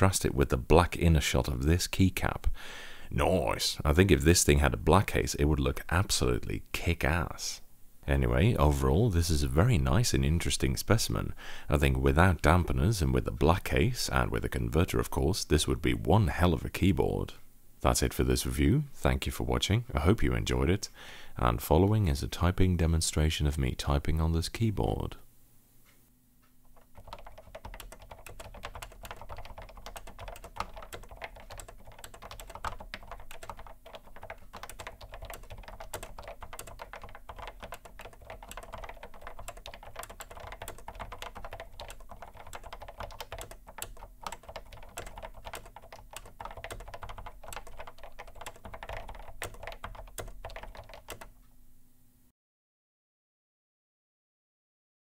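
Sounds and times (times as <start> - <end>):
dampened keyboard keystrokes: 26.7 - 51.3.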